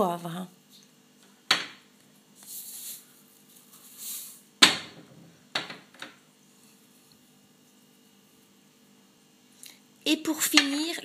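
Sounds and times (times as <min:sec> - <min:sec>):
sharp knocks: 0:01.5 - 0:01.8, 0:04.6 - 0:06.1.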